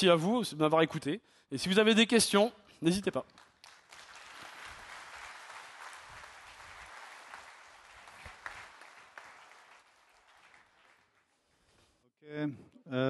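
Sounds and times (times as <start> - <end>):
audience applauding: 3.3 - 11.4.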